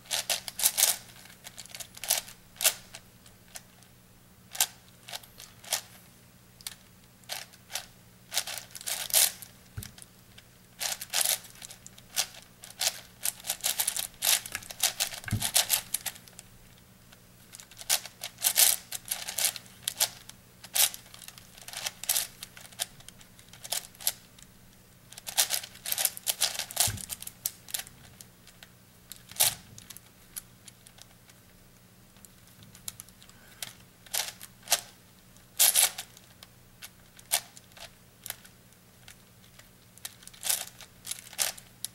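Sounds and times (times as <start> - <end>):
puzzle cube plastic clicks: 10.8 - 16.2, 25.1 - 27.9, 35.6 - 41.7.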